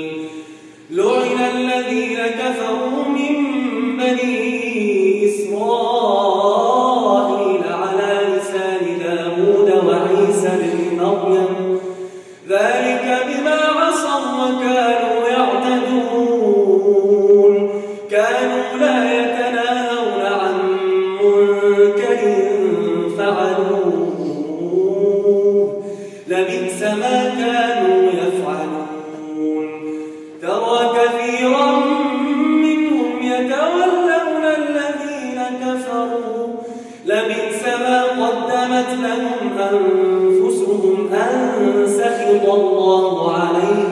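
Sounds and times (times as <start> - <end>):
man chanting melodically: 0.0 - 43.9
short breaths: 0.2 - 0.9, 11.8 - 12.5, 17.7 - 18.1, 25.8 - 26.3, 29.8 - 30.4, 36.6 - 37.0.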